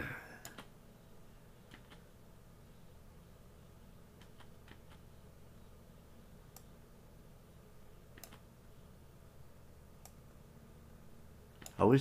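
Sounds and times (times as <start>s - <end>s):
computer mouse clicks: 0.4s - 0.7s, 1.7s - 2.0s, 4.2s - 5.1s, 6.5s - 6.7s, 8.1s - 8.4s, 10.0s - 10.2s, 11.6s - 11.8s.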